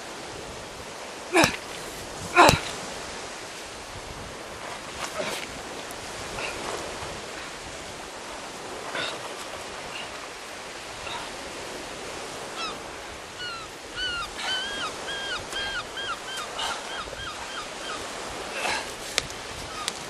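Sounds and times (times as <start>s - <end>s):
surf and wind hiss: 0.0s - 20.0s
gull calling: 2.4s - 2.7s, 12.5s - 18.9s.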